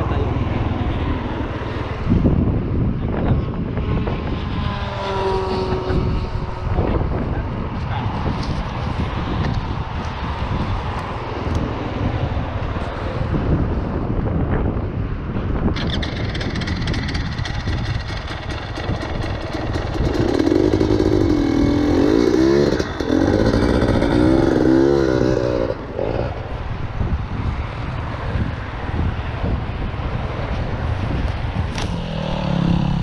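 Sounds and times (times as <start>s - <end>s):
motorcycle engine revving: 4.1s - 7.3s, 15.7s - 26.9s, 31.3s - 33.0s.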